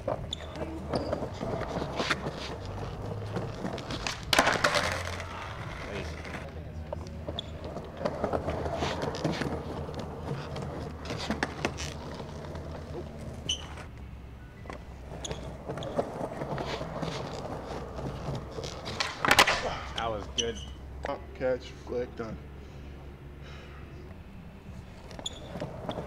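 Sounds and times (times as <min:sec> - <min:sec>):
skateboard clacks and knocks: 0:00.0 - 0:06.4, 0:14.7 - 0:19.9
skateboard wheels rolling on paving: 0:00.0 - 0:20.8, 0:24.7 - 0:26.0.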